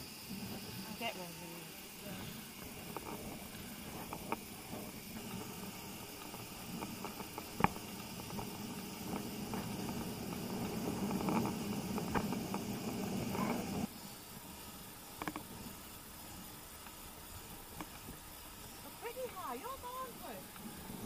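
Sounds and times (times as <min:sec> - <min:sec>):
wind noise: 0:01.8 - 0:13.9
tyre noise on asphalt: 0:02.2 - 0:21.0.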